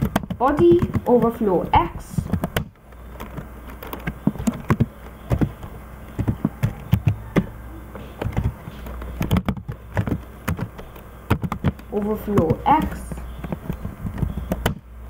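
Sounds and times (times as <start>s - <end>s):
faint low hum: 0.0s - 15.0s
keyboard typing: 0.0s - 15.0s.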